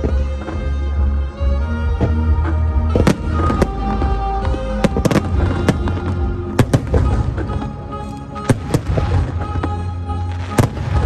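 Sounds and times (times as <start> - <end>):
firework shells bursting: 2.9 - 11.0.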